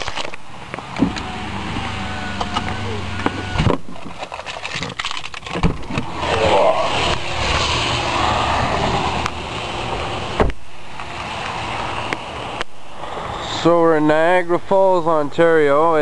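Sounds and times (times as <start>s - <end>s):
wet-road traffic: 0.0s - 16.0s
rain hiss: 6.0s - 15.3s
car door thump: 10.4s - 10.6s.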